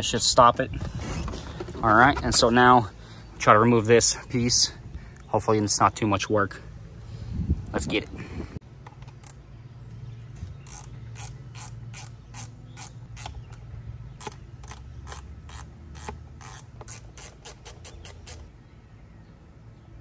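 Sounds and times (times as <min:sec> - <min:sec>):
ratchet wrench clicking: 0:10.6 - 0:13.6, 0:14.2 - 0:18.5.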